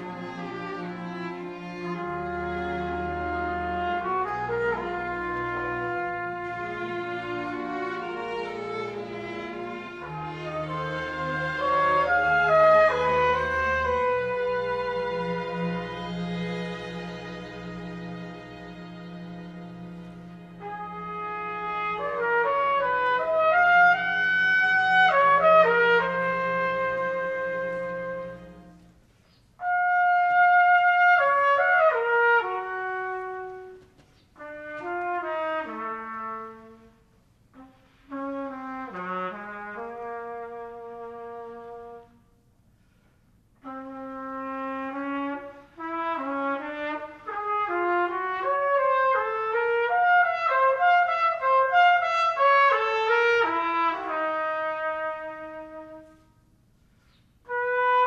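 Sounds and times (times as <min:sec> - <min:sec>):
orchestra sustained chords: 0:00.0 - 0:29.1
solo trumpet melody: 0:00.0 - 0:58.0.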